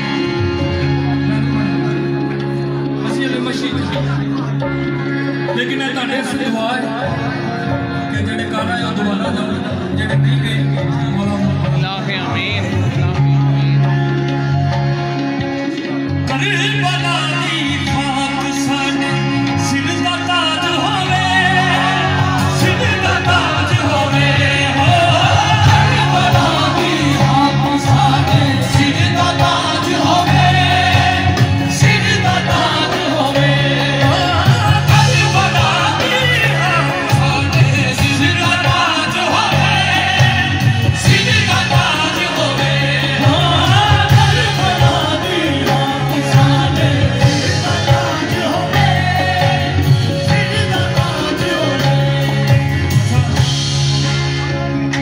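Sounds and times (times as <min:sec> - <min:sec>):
instrumental accompaniment with beat: 0:00.0 - 0:55.0
devotional singing: 0:16.3 - 0:54.0.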